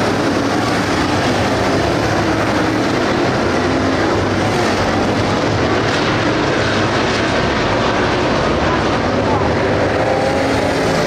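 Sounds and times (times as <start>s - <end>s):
race car engines roaring: 0.0s - 11.0s.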